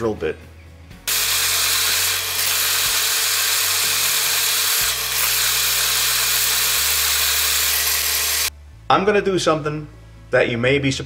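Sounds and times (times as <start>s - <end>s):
lathe drilling whir: 1.1s - 8.5s.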